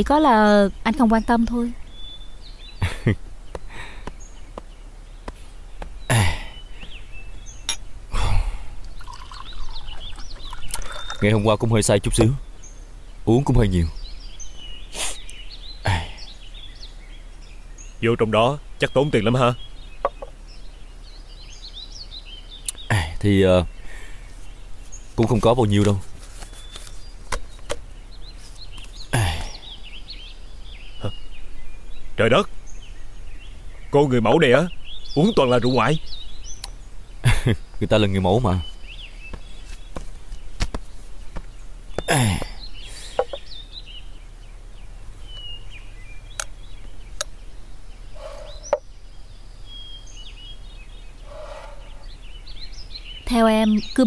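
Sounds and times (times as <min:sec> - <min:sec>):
faint bird chirps: 0:00.0 - 0:54.0
person's breathy vocal sounds: 0:08.1 - 0:08.8.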